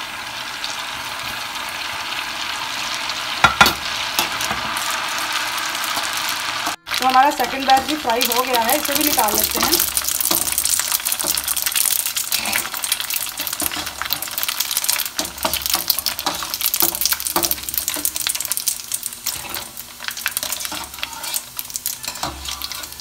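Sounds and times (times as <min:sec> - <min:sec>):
deep-frying crackling sizzle: 0:00.0 - 0:23.0.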